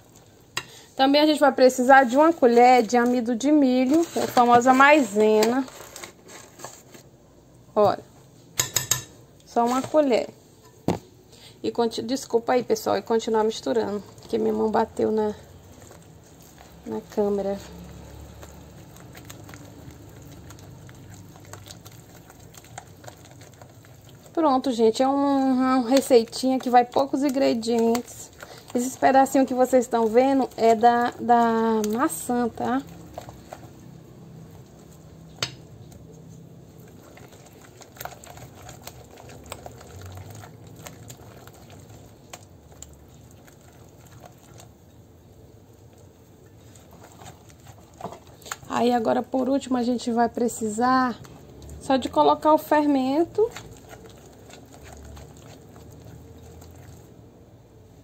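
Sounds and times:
whisk beating batter: 0:01.4 - 0:05.8, 0:13.0 - 0:45.1, 0:45.9 - 0:57.3
whisk clicking against bowl: 0:17.1 - 0:33.9, 0:51.2 - 0:57.0.

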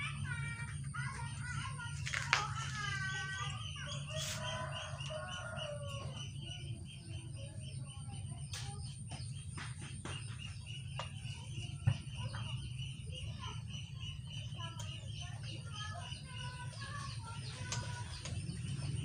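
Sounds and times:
rooster crowing: 0:04.1 - 0:06.3.

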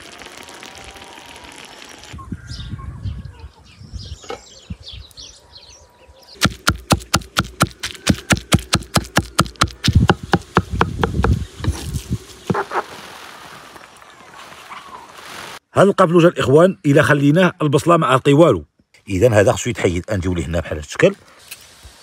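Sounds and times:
cleaver chopping on wooden block: 0:06.4 - 0:11.4.

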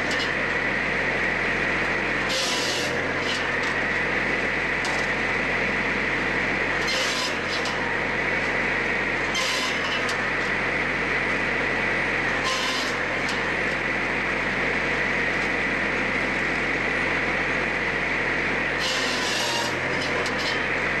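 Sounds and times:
saw cutting through wood: 0:00.0 - 0:05.4, 0:06.6 - 0:10.6, 0:12.2 - 0:13.9, 0:18.6 - 0:21.0
docking saw running: 0:00.0 - 0:10.7, 0:12.1 - 0:13.9, 0:18.6 - 0:20.8.

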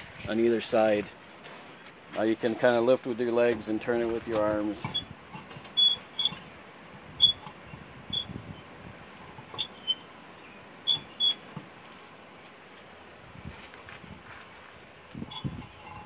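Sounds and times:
short high squeaks: 0:04.8 - 0:06.5, 0:07.2 - 0:08.7, 0:09.3 - 0:10.1, 0:10.8 - 0:11.5, 0:15.2 - 0:16.0.

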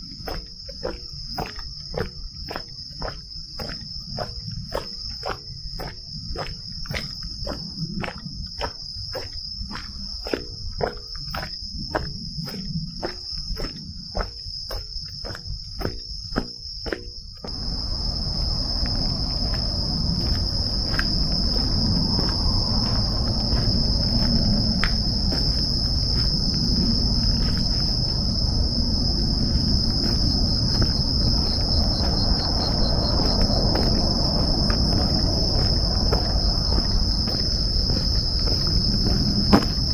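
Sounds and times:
footsteps: 0:00.0 - 0:39.9
night insects chirping: 0:00.0 - 0:39.9
low rumble: 0:17.5 - 0:39.9.

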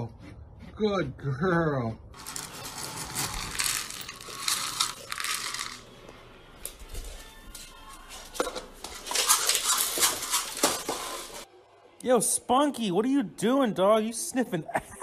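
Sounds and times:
dry pet food rattling: 0:02.2 - 0:05.8.

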